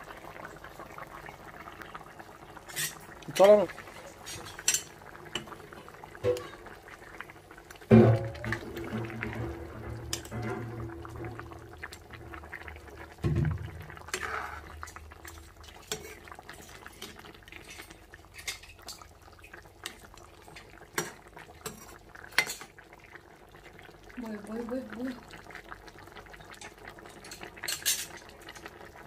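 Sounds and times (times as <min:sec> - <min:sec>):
curry simmering and bubbling: 0:00.0 - 0:29.0
ladle clicking on pan: 0:04.3 - 0:05.6, 0:07.9 - 0:12.0.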